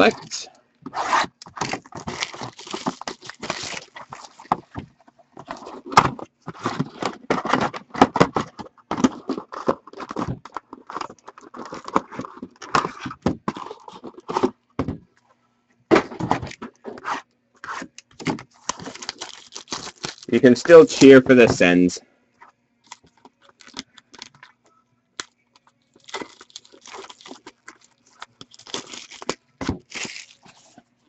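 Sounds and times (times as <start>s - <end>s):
cards scraping and shuffling: 0.9s - 4.7s, 16.0s - 21.8s
wrappers crinkling and tearing: 1.4s - 4.5s, 18.5s - 20.9s, 22.8s - 24.5s, 25.2s - 30.8s.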